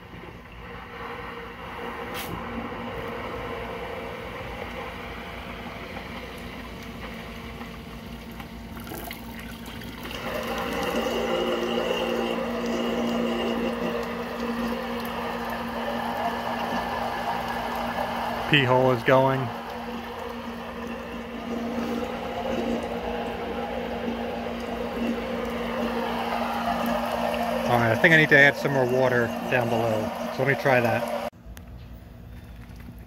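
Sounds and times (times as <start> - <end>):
submersible pump humming: 0.0 - 33.0
rushing water: 8.8 - 31.3.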